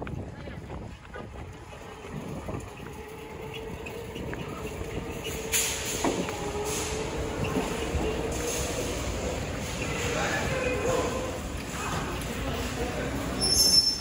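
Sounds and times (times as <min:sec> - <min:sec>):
wheels rumbling on pavement: 0:00.0 - 0:14.0
electric scooter motor whine: 0:01.4 - 0:05.5.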